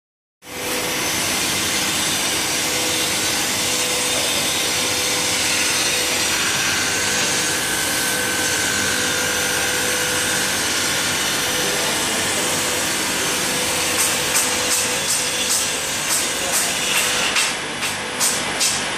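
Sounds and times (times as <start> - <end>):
glass grinding machine humming: 0.5 - 17.8.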